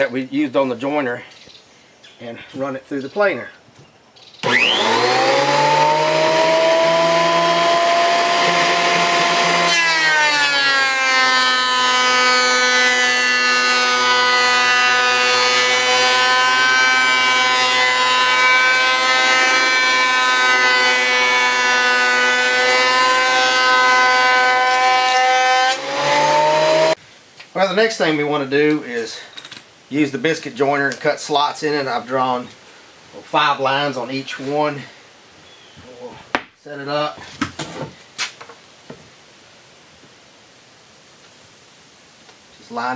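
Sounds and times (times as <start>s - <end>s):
thickness planer running: 4.4s - 27.0s.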